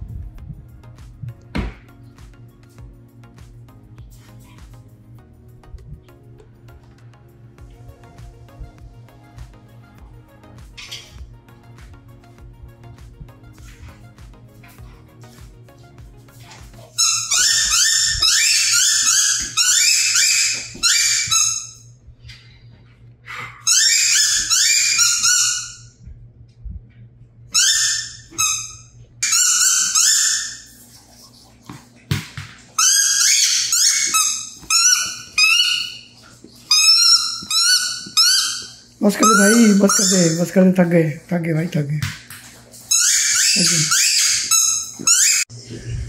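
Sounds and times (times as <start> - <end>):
squeaky toy squeaking: 17.0 - 21.9, 23.6 - 25.9, 27.5 - 30.7, 32.8 - 36.1, 36.7 - 40.5, 42.9 - 45.5.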